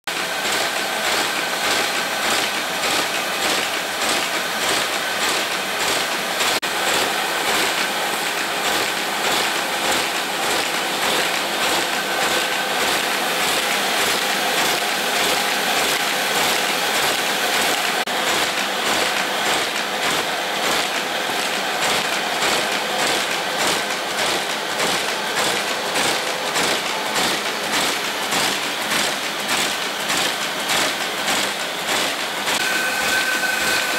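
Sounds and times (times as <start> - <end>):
paper folding machine clatter: 0.0 - 33.9.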